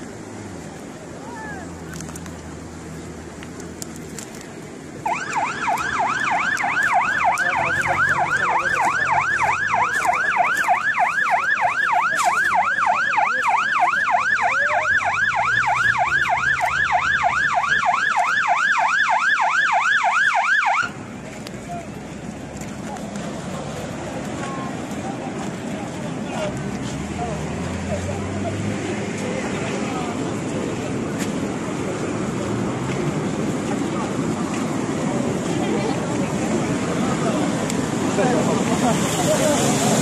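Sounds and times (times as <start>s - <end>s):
siren yelping: 5.0s - 21.0s.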